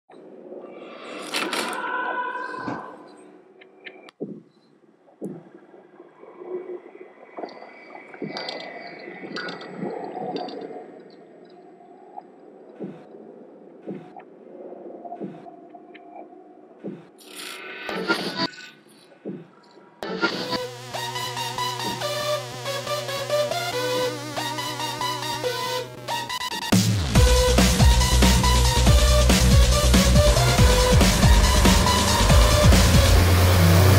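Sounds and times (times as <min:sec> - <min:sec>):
synth melody: 0:20.0 - 0:33.9
heavy bass with falling sweeps: 0:26.8 - 0:33.9
low rumbling drone: 0:27.2 - 0:33.9.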